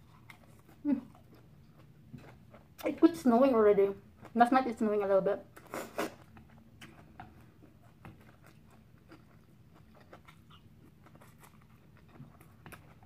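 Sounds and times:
chewing noodles: 0.0s - 2.8s, 5.6s - 13.0s.

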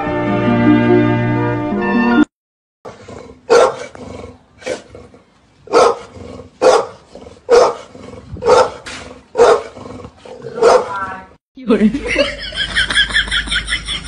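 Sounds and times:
large dog barking: 2.9s - 4.0s, 5.6s - 11.1s.

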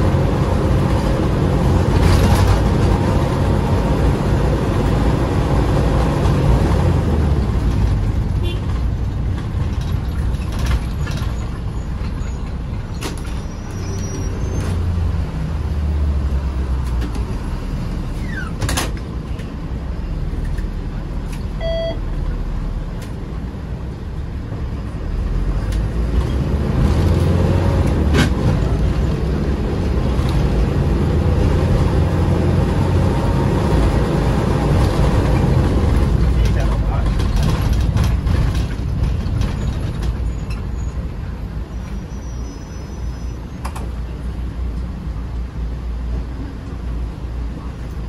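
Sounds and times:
diesel engine rumbling: 0.0s - 48.0s
short electronic beep: 21.6s - 22.0s
sharp knocks and rattles: 34.6s - 40.7s.

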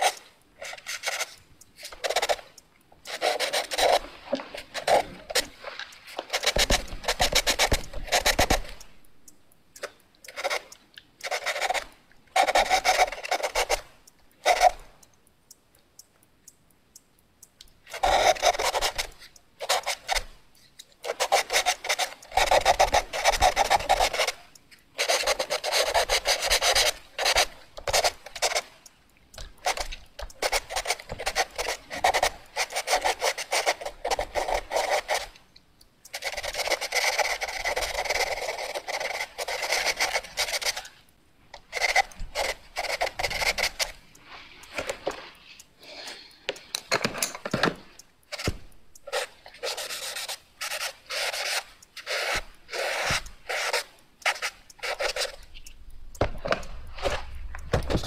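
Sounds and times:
pencil scribbling on paper: 0.0s - 1.4s, 3.1s - 5.6s, 6.2s - 8.8s, 10.4s - 13.8s, 14.4s - 14.8s, 17.9s - 20.3s, 21.0s - 24.4s, 25.0s - 28.6s, 29.6s - 35.4s, 36.1s - 40.9s, 41.7s - 44.0s, 48.4s - 55.4s.

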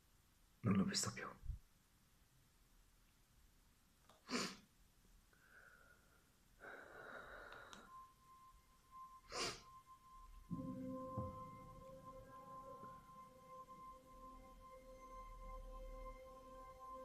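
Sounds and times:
man breathing sharply: 5.3s - 8.1s
background music with held notes: 6.6s - 17.0s.

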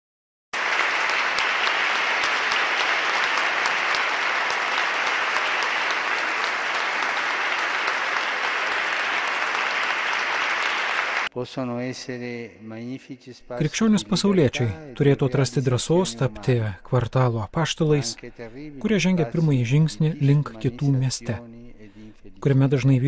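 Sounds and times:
audience applause: 0.6s - 11.3s.

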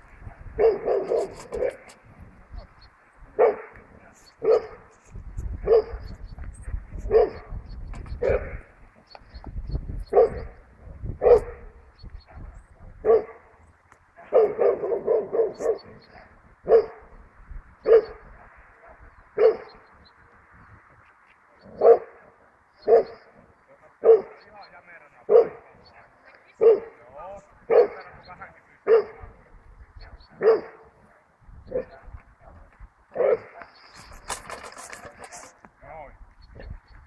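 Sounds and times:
dog barking: 0.6s - 1.9s, 3.4s - 3.8s, 4.4s - 4.9s, 5.6s - 6.0s, 7.0s - 7.5s, 8.2s - 8.6s, 10.1s - 10.6s, 11.2s - 13.5s, 14.2s - 17.1s, 17.8s - 19.8s, 21.8s - 22.2s, 22.8s - 23.3s, 24.0s - 24.4s, 25.3s - 27.0s, 27.7s - 28.1s, 28.8s - 29.4s, 30.4s - 31.0s, 31.7s - 32.1s, 33.2s - 33.7s.

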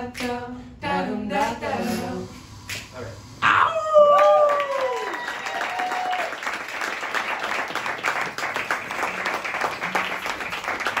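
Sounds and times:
audience applauding: 4.0s - 11.0s.

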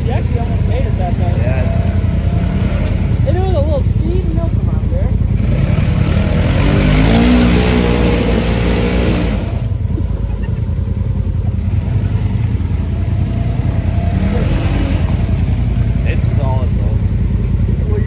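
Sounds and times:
engine revving hard in mud: 0.0s - 4.5s, 5.3s - 9.8s, 11.8s - 17.0s.

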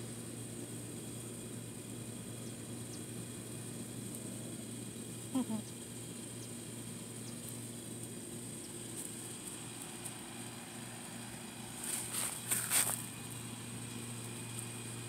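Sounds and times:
low mechanical hum: 0.0s - 15.0s
rustling scuffles: 11.8s - 13.1s.

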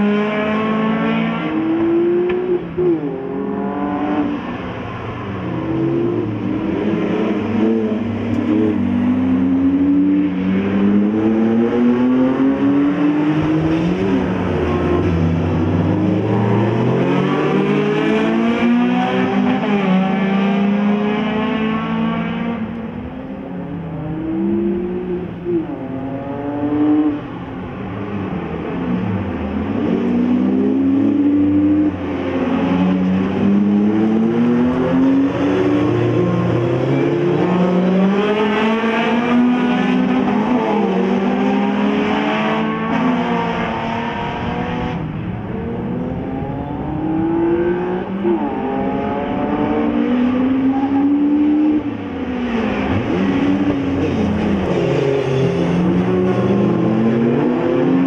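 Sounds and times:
race car engines revving: 0.0s - 58.0s.

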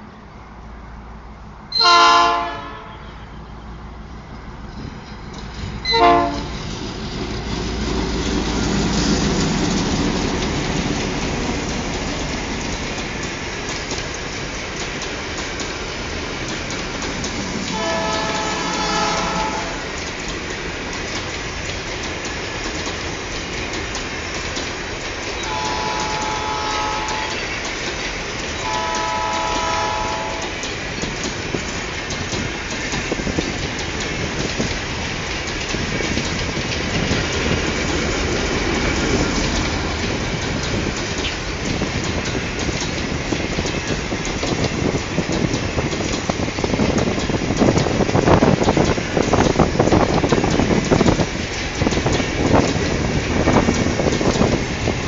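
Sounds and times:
multi-chime locomotive horn: 1.8s - 3.5s, 5.9s - 6.6s, 17.7s - 19.8s, 25.4s - 27.5s, 28.6s - 30.5s
train wheel rumble and clicking: 3.5s - 55.0s.

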